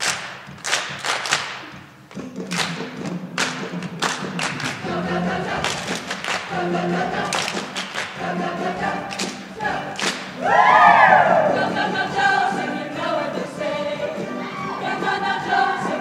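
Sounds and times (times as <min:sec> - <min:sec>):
choir singing to music: 0:04.4 - 0:16.0
voices whooping: 0:10.4 - 0:11.8, 0:14.3 - 0:15.0.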